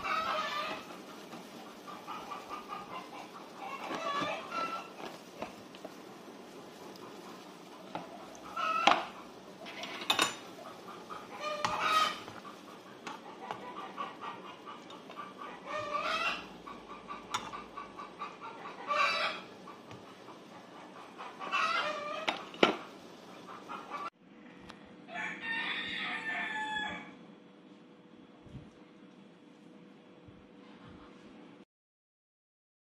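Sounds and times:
chickens clucking: 0.0s - 24.1s.

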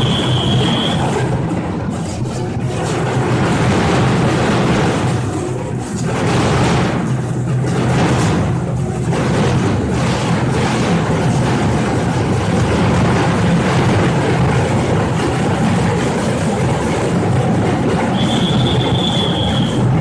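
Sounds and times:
steady high tone: 0.0s - 1.4s, 18.0s - 20.0s
drums playing together: 0.0s - 20.0s.

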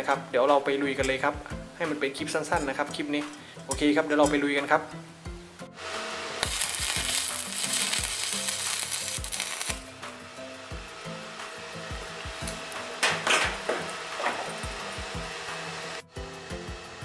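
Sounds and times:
welding arc crackling: 5.8s - 16.0s.

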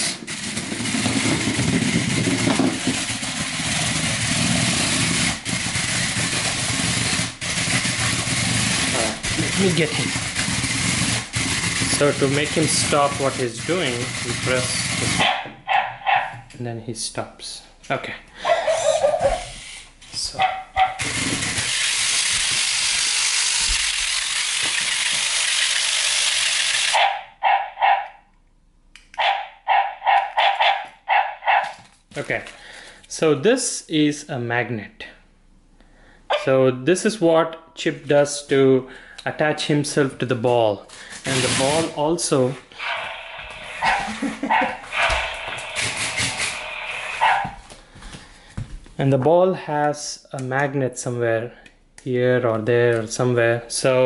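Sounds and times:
robot toy motors whirring: 0.0s - 15.4s, 20.9s - 27.0s, 41.3s - 41.9s, 42.8s - 47.6s
robot dog electronic barks: 15.2s - 16.4s, 20.4s - 21.1s, 27.0s - 28.2s, 29.2s - 31.8s, 36.3s - 36.5s, 42.8s - 47.6s.

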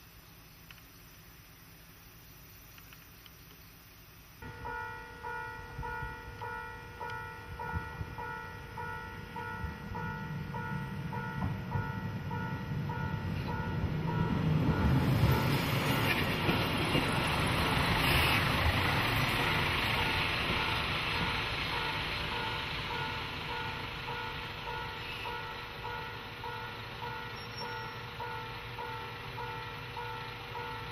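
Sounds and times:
diesel railcar passing: 4.1s - 30.9s
level-crossing bell ringing: 4.4s - 15.5s.

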